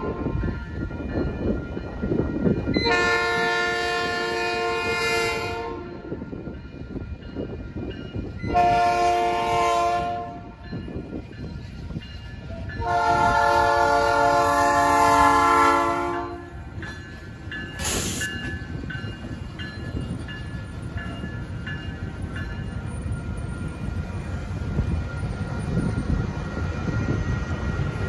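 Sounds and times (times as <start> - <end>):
crossing bells ringing: 0.0 - 28.0
locomotive horn blast: 2.8 - 6.0, 8.5 - 10.6, 12.8 - 16.5
air hiss: 17.8 - 18.4.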